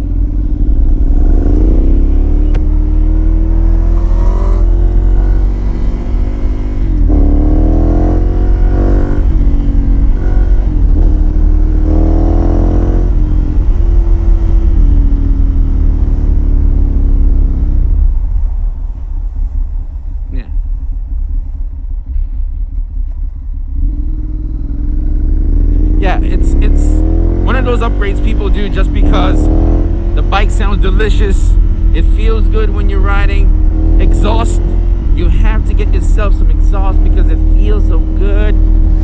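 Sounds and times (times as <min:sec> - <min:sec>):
motorcycle engine accelerating: 0:00.0 - 0:20.5, 0:21.2 - 0:39.0
wind rumble on microphone: 0:00.0 - 0:26.0.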